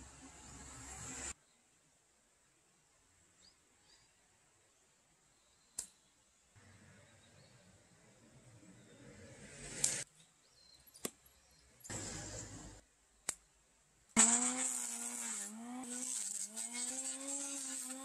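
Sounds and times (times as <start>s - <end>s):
electric planer cutting wood: 14.2s - 18.0s.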